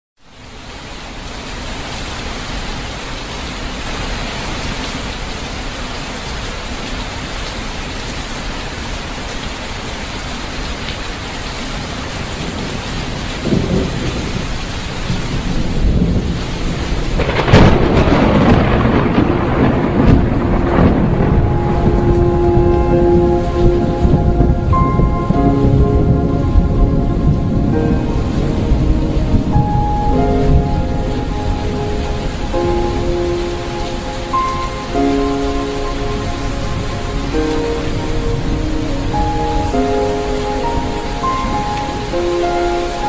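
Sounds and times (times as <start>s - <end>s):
heavy rain: 0.2s - 43.0s
thunder rumbling: 12.4s - 43.0s
loud thunderclap: 13.4s - 32.9s.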